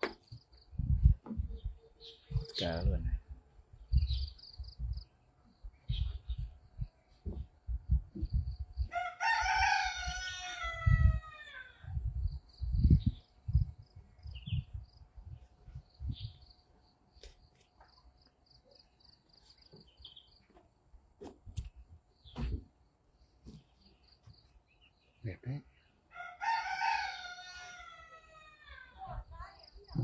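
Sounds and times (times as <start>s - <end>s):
faint high bird chirps: 0.2s - 2.8s
rooster crowing: 8.9s - 11.8s, 26.1s - 28.9s.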